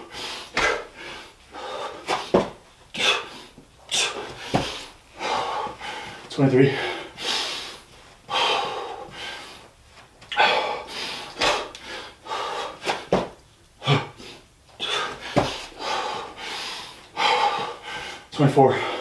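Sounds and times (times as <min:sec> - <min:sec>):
man breathing hard: 0:00.0 - 0:19.0
body thud on floor: 0:02.1 - 0:02.6, 0:04.3 - 0:04.8, 0:12.9 - 0:13.4, 0:15.2 - 0:15.7.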